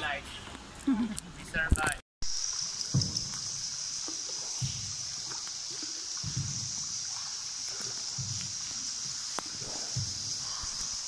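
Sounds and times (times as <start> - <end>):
steady high hiss: 0.0 - 11.0
paddle strokes splashing in water: 2.4 - 11.0.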